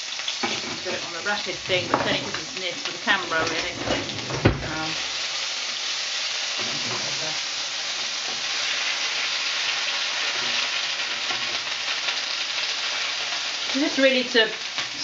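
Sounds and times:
paste sizzling in hot oil: 0.0s - 15.0s
spatula stirring in a pan: 6.5s - 13.7s.

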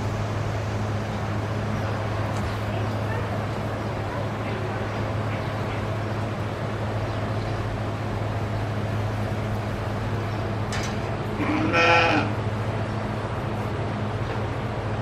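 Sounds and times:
steady low hum: 0.0s - 15.0s
sheep bleating: 11.4s - 12.4s.

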